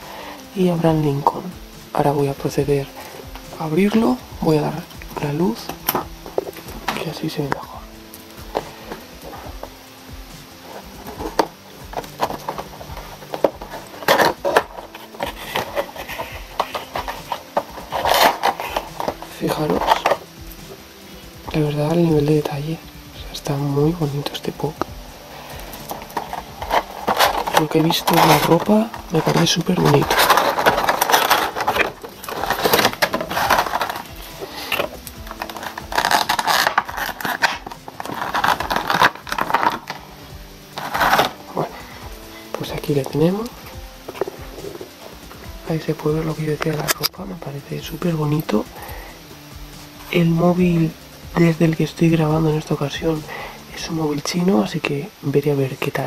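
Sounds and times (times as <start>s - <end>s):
plastic blister tray crinkling: 0.0s - 56.0s
scraping rustles: 0.0s - 56.0s
cardboard box handled: 10.4s - 49.2s.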